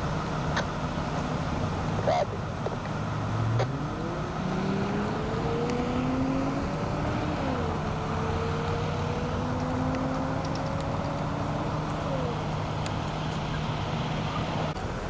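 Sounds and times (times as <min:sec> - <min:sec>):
freeway traffic noise: 0:00.0 - 0:15.0
vehicle engine rising in pitch: 0:03.0 - 0:15.0.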